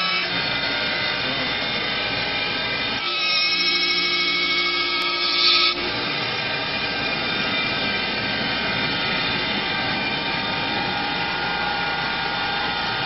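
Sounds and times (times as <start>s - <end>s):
lathe machine whir: 0.0s - 13.0s
faint whine: 5.8s - 13.0s.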